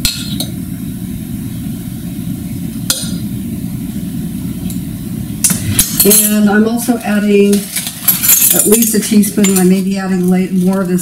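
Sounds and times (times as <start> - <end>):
steady low hum: 0.0 - 11.0
metal spoons clinking: 5.5 - 6.6, 7.4 - 9.8.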